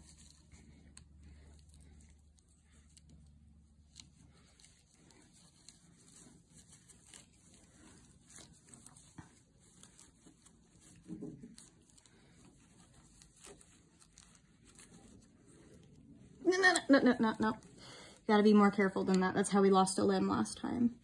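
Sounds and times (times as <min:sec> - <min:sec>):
paper towel rustling: 0:03.7 - 0:19.0.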